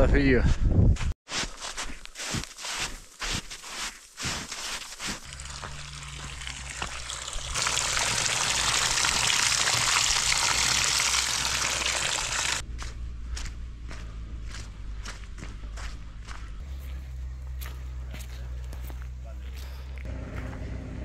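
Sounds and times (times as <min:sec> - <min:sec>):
footsteps: 0:00.5 - 0:20.7
running water rushing: 0:05.1 - 0:12.6.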